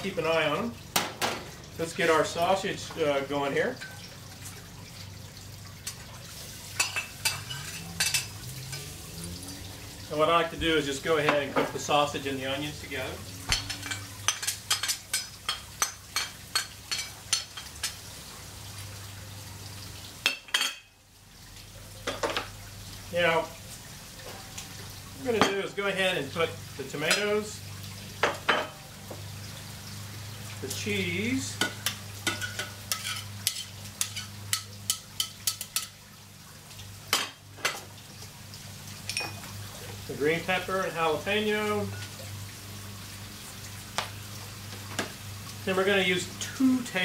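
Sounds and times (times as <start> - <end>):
sausage sizzling in pan: 0.0 - 47.0.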